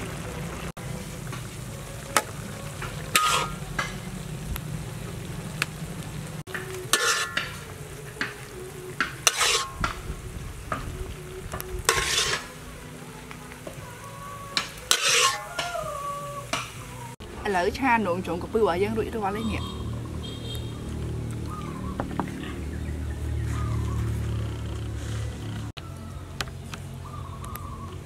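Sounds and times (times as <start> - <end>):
stir fry sizzling in a wok: 0.0 - 22.2
metal spatula scraping wok: 2.9 - 4.1, 6.5 - 10.0, 11.8 - 12.6, 14.5 - 15.8.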